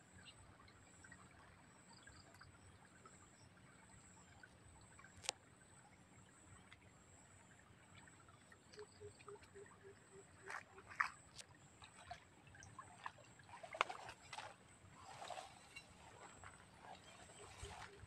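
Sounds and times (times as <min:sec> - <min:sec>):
stream water splashing: 0:07.7 - 0:18.0.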